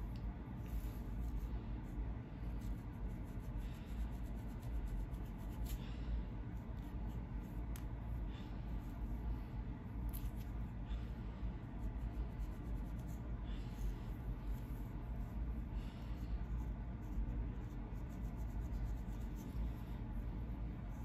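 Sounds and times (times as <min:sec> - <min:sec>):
steady low rumble: 0:00.0 - 0:21.0
comb scraping along scalp: 0:00.6 - 0:05.9, 0:11.6 - 0:15.5, 0:16.1 - 0:21.0.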